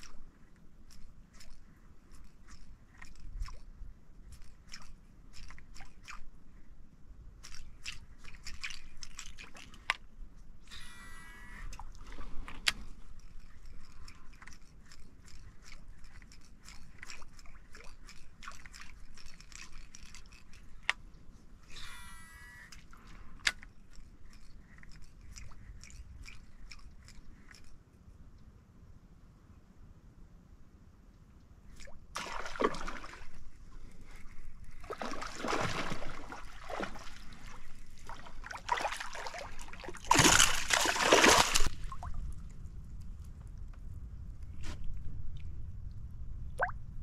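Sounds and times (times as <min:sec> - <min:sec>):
fishing reel whir: 0:00.0 - 0:06.3, 0:07.4 - 0:10.0, 0:10.6 - 0:12.0, 0:12.9 - 0:21.0, 0:21.6 - 0:27.8
fishing reel clicks: 0:10.6 - 0:11.9, 0:12.6 - 0:21.0, 0:21.6 - 0:27.8.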